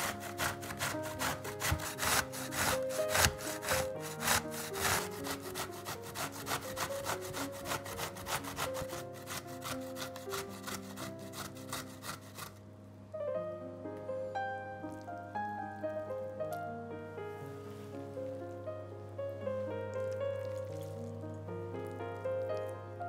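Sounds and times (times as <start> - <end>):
grater rasping: 0.0 - 12.6
soft piano music: 0.0 - 23.0.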